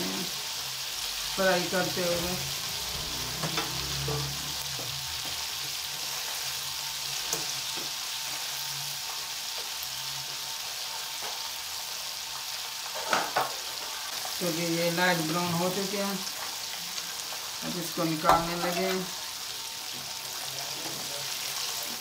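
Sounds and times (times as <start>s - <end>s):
chicken sizzling in hot oil: 0.0s - 22.0s.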